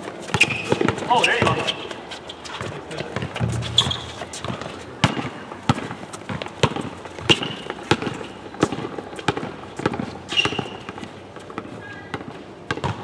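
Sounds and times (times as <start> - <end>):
basketball bouncing on court: 0.3 - 1.7, 2.6 - 11.1, 12.1 - 13.0.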